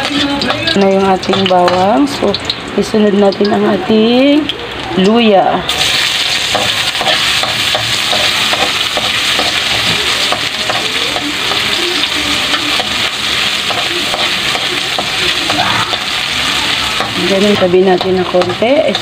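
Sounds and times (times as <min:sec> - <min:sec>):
spatula scraping and tapping wok: 0:00.0 - 0:02.6, 0:05.7 - 0:19.0
ginger and garlic sizzling in oil: 0:00.0 - 0:19.0.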